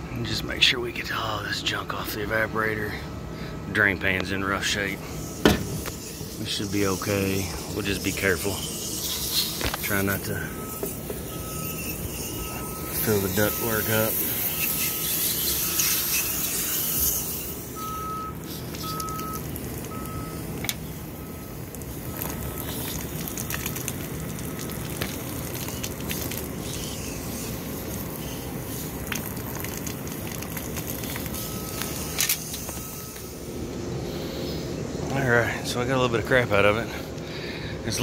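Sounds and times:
hose water spraying: 0:04.6 - 0:33.5
faint beep: 0:10.3 - 0:14.1, 0:17.8 - 0:20.4, 0:31.4 - 0:33.4.

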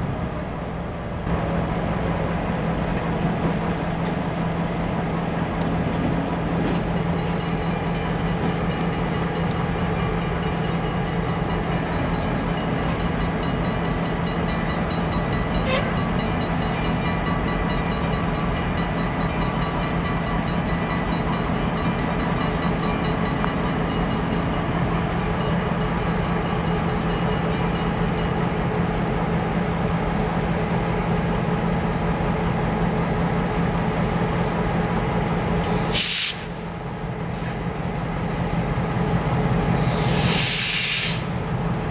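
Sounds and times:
diesel locomotive engine drone: 0:00.0 - 0:41.9
sharp hiss of air: 0:35.6 - 0:36.6, 0:39.6 - 0:41.4.

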